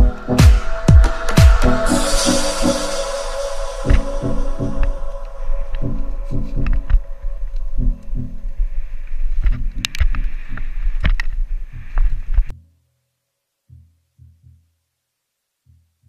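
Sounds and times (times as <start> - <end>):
rushing noise: 0.0 - 9.6.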